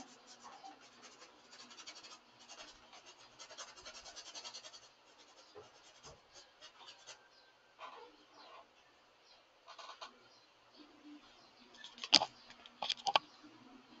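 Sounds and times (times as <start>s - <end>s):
paintbrush scratching on canvas: 0.0s - 8.6s.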